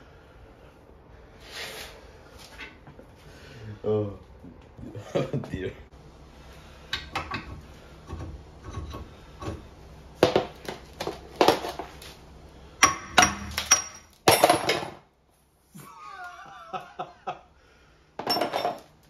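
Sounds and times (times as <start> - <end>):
metal tool parts clanking: 12.8 - 15.0, 18.2 - 18.9.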